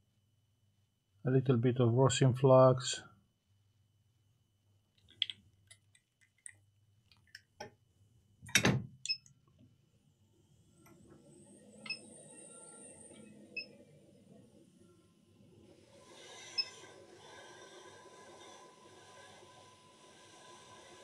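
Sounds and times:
faint high whine: 10.3 - 15.8
hot air station hissing: 15.6 - 21.0.

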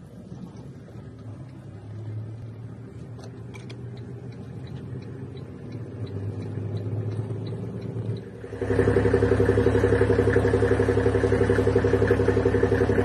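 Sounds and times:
vehicle engine hum from inside: 0.0 - 13.0
faint light ticking: 1.1 - 8.4.

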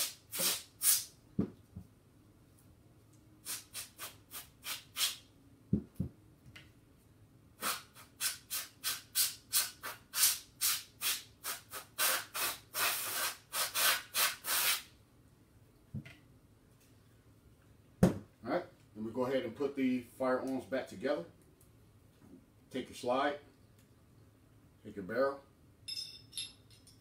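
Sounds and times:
compressed air hissing blasts: 0.0 - 1.1, 3.4 - 5.3, 7.6 - 14.9.

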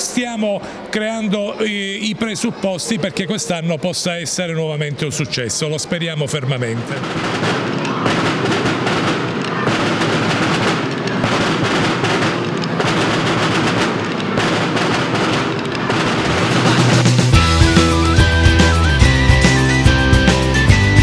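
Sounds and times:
marching drums rolls: 6.2 - 21.0
music with bass and melody: 16.3 - 21.0.

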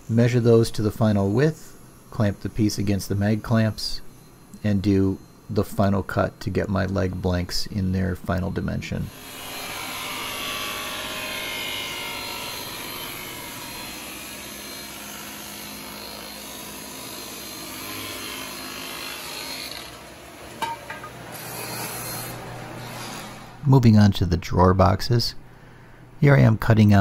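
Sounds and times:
saw motor hum: 9.1 - 23.6
table saw cutting wood: 9.1 - 23.6.

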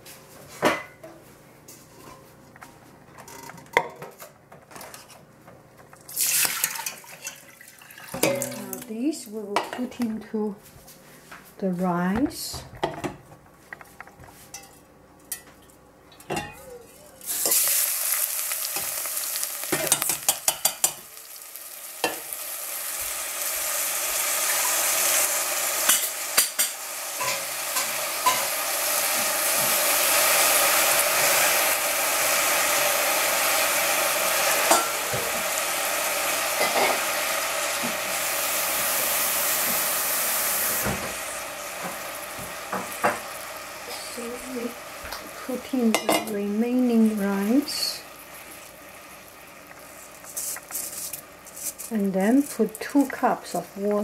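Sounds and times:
rice sizzling in hot oil: 6.0 - 9.8, 17.1 - 54.0
utensil clicking on a pan: 19.7 - 21.0.

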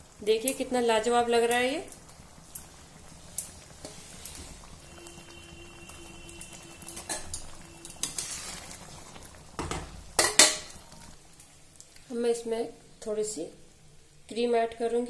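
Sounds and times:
metal spoon scraping metal pan: 7.0 - 8.8.

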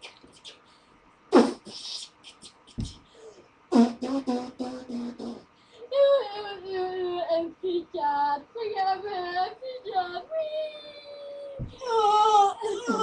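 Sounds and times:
vocal beatboxing: 1.3 - 3.1, 3.7 - 5.5.

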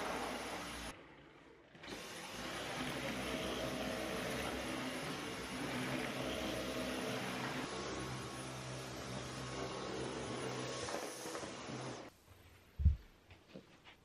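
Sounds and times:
stick vacuum cleaner running: 0.0 - 12.1.

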